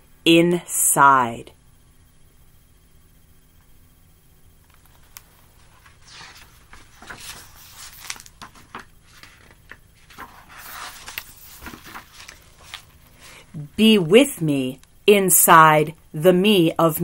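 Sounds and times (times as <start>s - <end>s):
book pages rustling: 4.7s - 13.3s.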